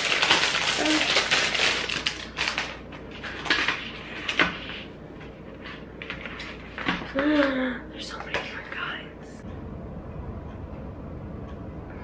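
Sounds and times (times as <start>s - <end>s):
plastic packaging crinkling: 0.0s - 4.3s.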